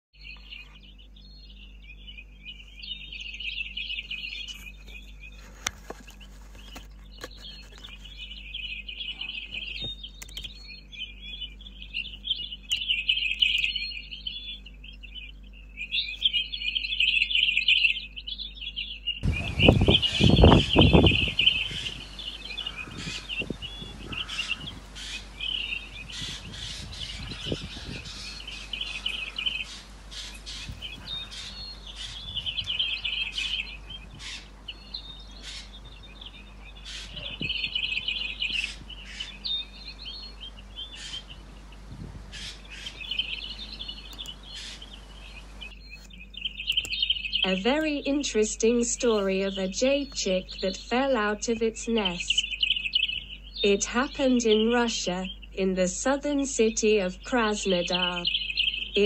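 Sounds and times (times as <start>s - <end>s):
fledgling bird calling: 0.2s - 59.0s
loud low rumble: 19.2s - 34.7s.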